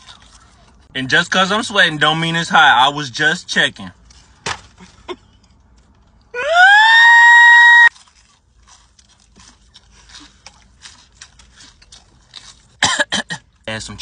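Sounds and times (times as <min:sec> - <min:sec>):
crunching and chewing: 0:00.0 - 0:00.9, 0:03.9 - 0:06.3, 0:07.9 - 0:14.0.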